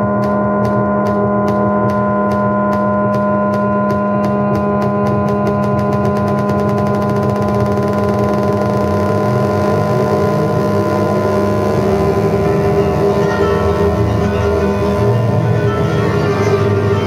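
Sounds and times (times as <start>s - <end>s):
synthesizer drone: 0.0s - 17.0s
fast high pulsing: 4.3s - 17.0s.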